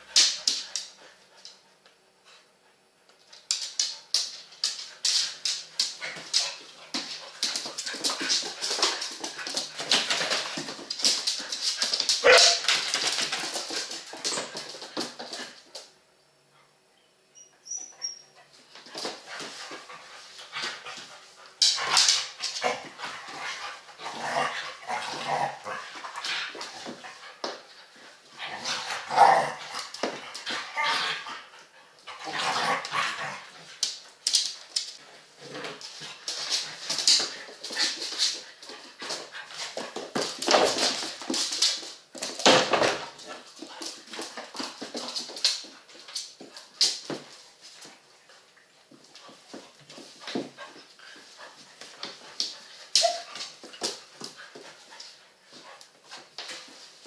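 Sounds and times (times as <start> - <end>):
dogs whining and yipping: 17.4 - 18.4, 53.0 - 53.4.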